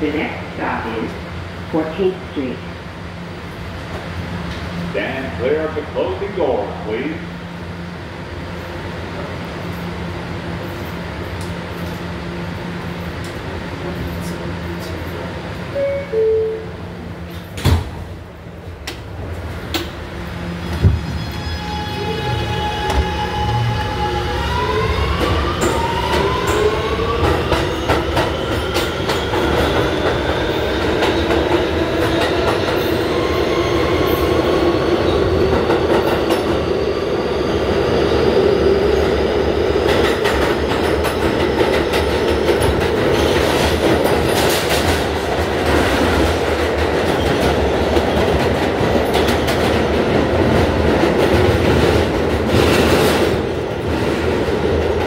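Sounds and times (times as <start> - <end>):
train running rumble: 16.8 - 55.0
train propulsion whine: 18.8 - 45.4.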